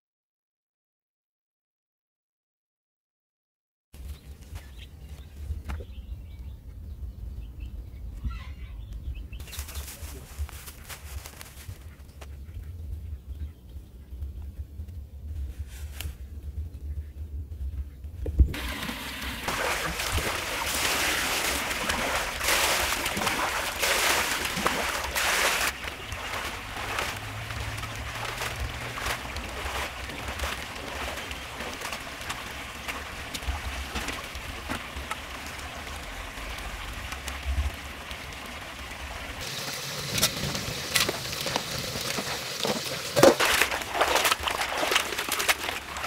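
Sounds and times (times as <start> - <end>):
crackling rustles: 9.4 - 12.4, 14.8 - 16.9, 20.0 - 38.5, 39.4 - 46.0
steady low rumble: 11.7 - 18.7
water pouring into metal basin: 18.6 - 37.2.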